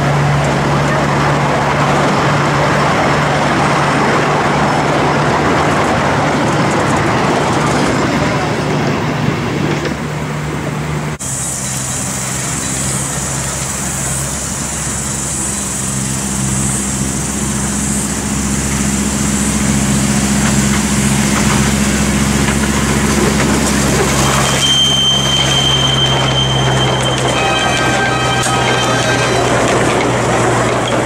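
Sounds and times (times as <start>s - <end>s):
carriages rolling past: 0.0s - 31.0s
locomotive engine running: 0.0s - 31.0s
thin high squeal: 23.6s - 31.0s.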